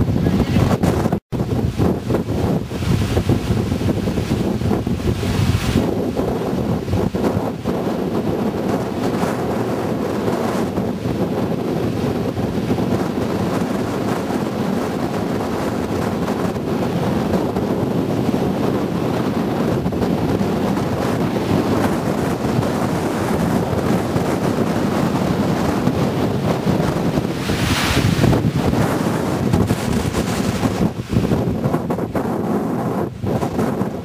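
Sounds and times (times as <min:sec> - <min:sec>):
wind noise on microphone: 0:00.0 - 0:34.0
waterfall rushing: 0:26.9 - 0:30.2.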